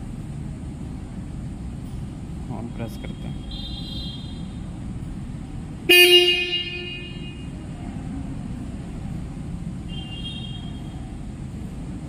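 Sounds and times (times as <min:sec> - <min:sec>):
motorcycle horn honk: 0:03.5 - 0:04.6, 0:05.9 - 0:07.6, 0:09.9 - 0:11.0.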